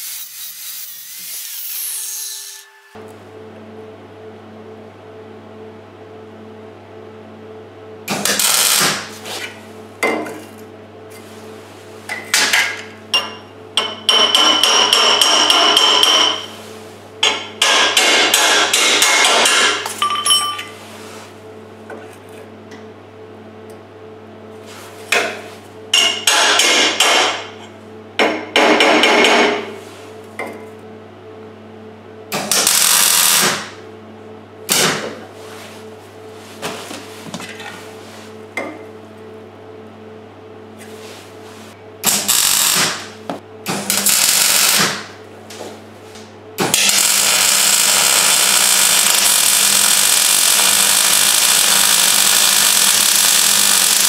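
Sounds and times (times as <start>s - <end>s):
welding crackling and sizzling: 0.0s - 2.0s, 8.2s - 9.2s, 32.5s - 33.7s, 42.1s - 43.1s, 43.8s - 45.0s, 46.7s - 54.0s
steady low hum: 3.0s - 49.5s.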